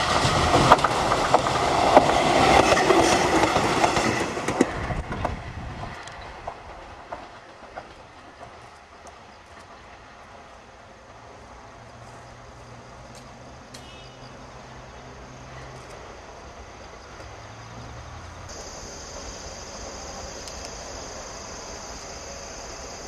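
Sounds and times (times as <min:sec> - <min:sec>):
electric train drone: 0:00.0 - 0:23.0
insects chirring: 0:11.9 - 0:23.0.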